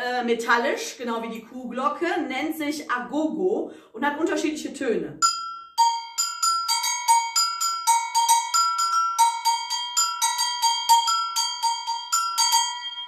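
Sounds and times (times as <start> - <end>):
agogo bells struck with stick: 5.2 - 13.0.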